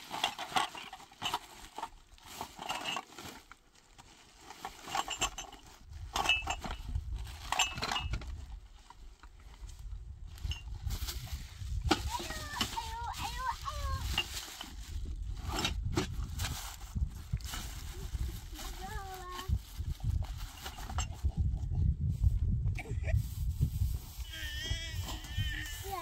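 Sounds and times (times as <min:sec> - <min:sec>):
plastic bags rustling: 0:10.4 - 0:21.0.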